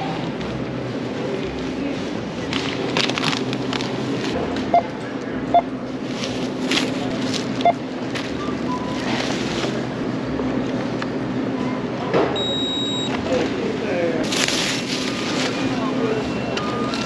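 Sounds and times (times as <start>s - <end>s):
steady store hum: 0.0s - 17.0s
barcode scanner beeping: 7.6s - 9.2s, 12.4s - 13.2s, 16.2s - 17.0s
plastic bag rustling: 14.2s - 16.0s.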